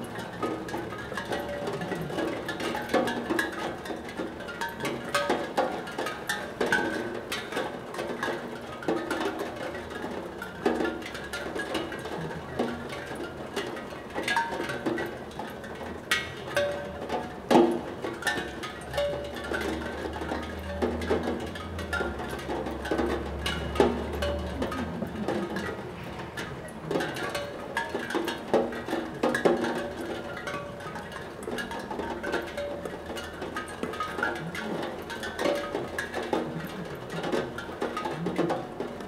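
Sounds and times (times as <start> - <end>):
raindrops on steel tongue drum: 0.0 - 39.0.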